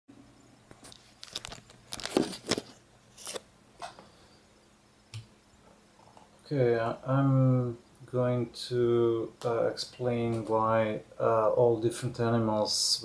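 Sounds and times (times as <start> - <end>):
faint low hum: 0.1 - 13.0
handling rustles and knocks: 0.7 - 4.0.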